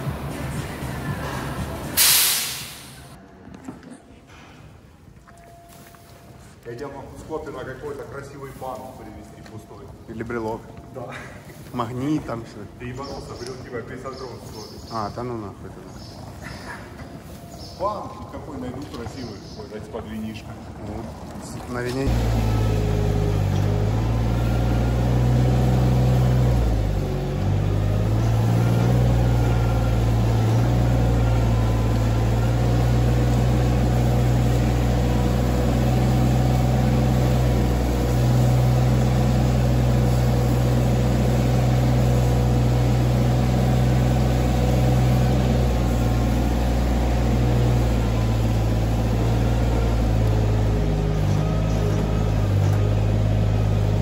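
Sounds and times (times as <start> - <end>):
small engine running under load: 16.0 - 54.0.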